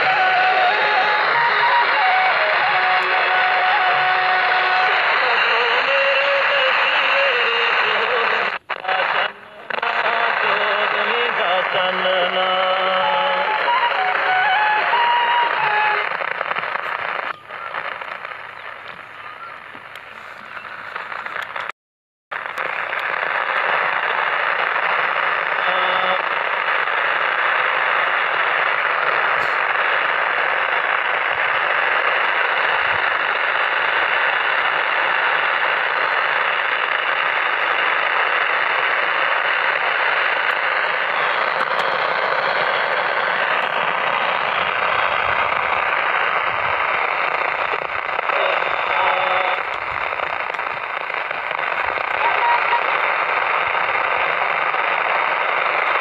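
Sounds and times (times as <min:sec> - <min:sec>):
radio static hiss: 0:00.0 - 0:21.7, 0:22.3 - 0:56.0
faint broadcast voice: 0:06.8 - 0:13.5, 0:14.9 - 0:21.4, 0:22.5 - 0:26.6, 0:40.6 - 0:55.7.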